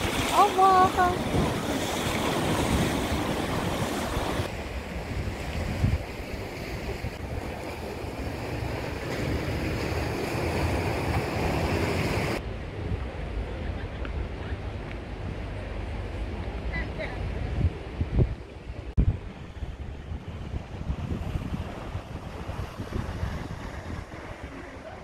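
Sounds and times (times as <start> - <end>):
sea surf breaking on rocks: 0.0 - 12.4
wind rumbling on microphone: 0.0 - 25.0.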